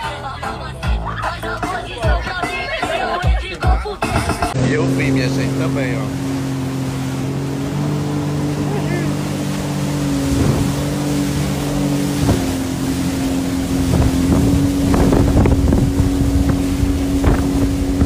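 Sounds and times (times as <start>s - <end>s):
speedboat engine droning: 0.0s - 18.0s
hull splashing and knocking: 4.0s - 18.0s
wind on microphone: 10.1s - 18.0s.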